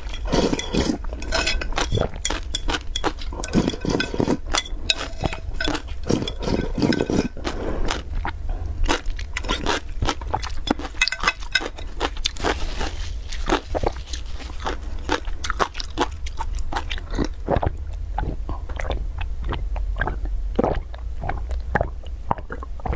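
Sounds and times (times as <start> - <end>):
person crunching and chewing: 0.0 - 22.9
person gulping broth: 17.0 - 22.9.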